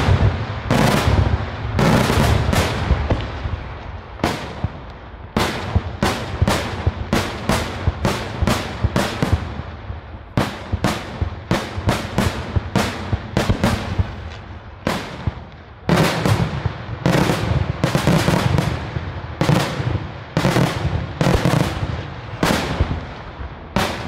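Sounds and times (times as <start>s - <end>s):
fireworks bangs: 0.0s - 24.0s.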